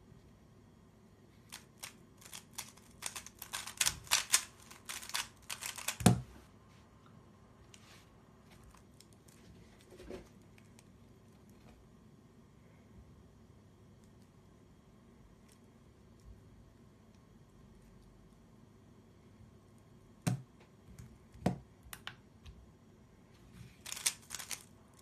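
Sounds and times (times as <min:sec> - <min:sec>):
puzzle cube clicking: 0:01.5 - 0:06.2, 0:23.8 - 0:24.6
cube set down thud: 0:05.9 - 0:06.3.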